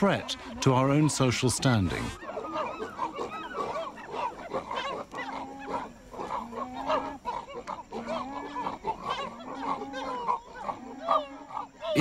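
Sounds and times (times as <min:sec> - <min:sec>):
chimpanzees calling: 0:00.0 - 0:12.0.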